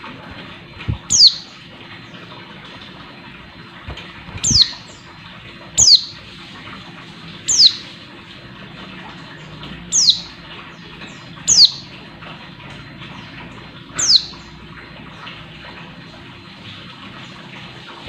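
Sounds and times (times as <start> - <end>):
bird high downward calls: 1.0 - 1.6, 4.4 - 5.1, 5.8 - 6.2, 7.4 - 7.9, 9.9 - 10.4, 11.1 - 12.0, 13.9 - 14.6.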